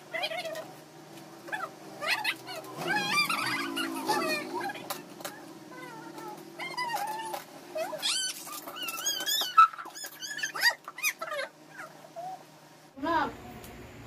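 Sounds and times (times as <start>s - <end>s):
animal whining: 1.4s - 12.5s.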